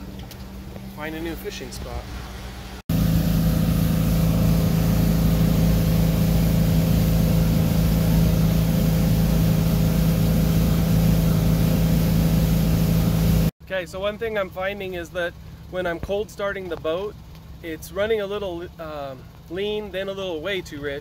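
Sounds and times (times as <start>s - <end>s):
boat engine running steadily: 0.0s - 13.5s.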